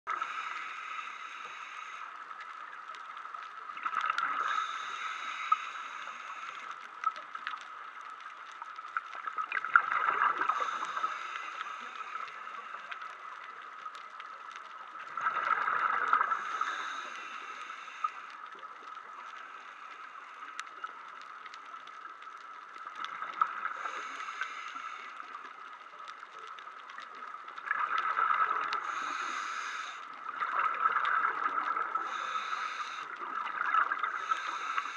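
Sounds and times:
regulator hiss: 0:00.1 - 0:02.7, 0:04.2 - 0:06.8, 0:10.2 - 0:13.5, 0:16.2 - 0:20.9, 0:23.1 - 0:26.1, 0:28.8 - 0:30.4, 0:32.0 - 0:34.9
exhaled bubbles gurgling underwater: 0:00.1 - 0:34.9.

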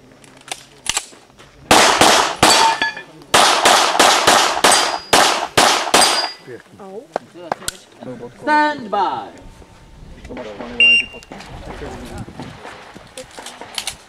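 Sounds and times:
pistol shots: 0:01.7 - 0:06.4
steel targets clanging: 0:02.2 - 0:03.2, 0:04.5 - 0:06.5.

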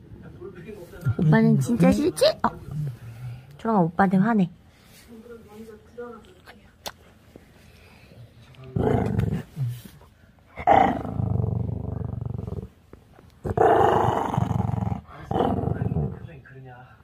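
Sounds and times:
dog growling: 0:08.7 - 0:09.7, 0:10.6 - 0:12.8, 0:13.4 - 0:16.3.

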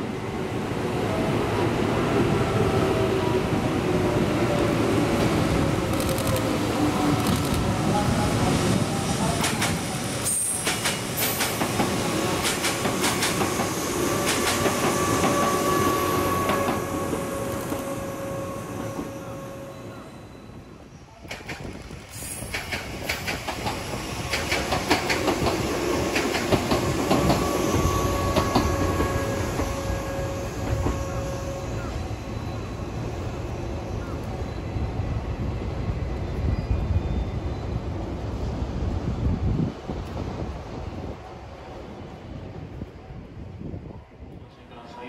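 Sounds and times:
train wheels clicking over rail joints: 0:09.4 - 0:15.6, 0:21.2 - 0:27.5.

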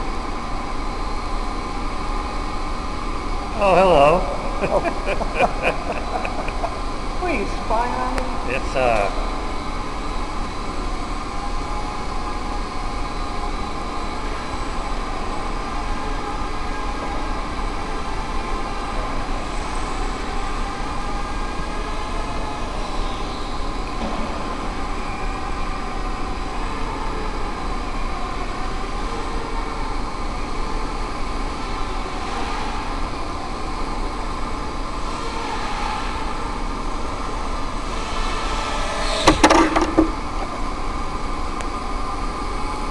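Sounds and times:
quadcopter motors whining: 0:03.7 - 0:08.2
loud knock: 0:39.2 - 0:40.2.

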